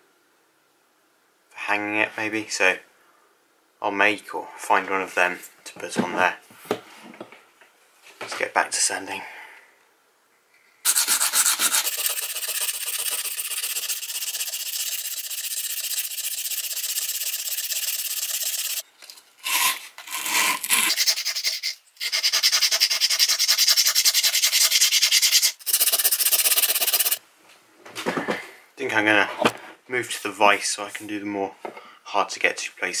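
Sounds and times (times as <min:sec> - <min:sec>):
sandpaper rubbing on steel: 0:10.9 - 0:18.8, 0:19.5 - 0:27.2.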